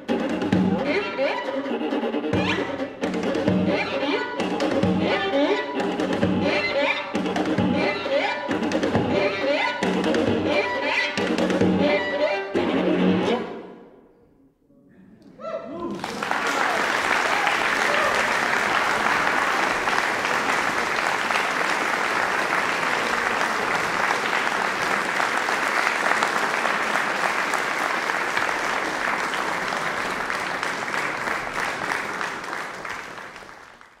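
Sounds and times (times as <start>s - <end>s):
audience applauding: 15.8s - 34.0s.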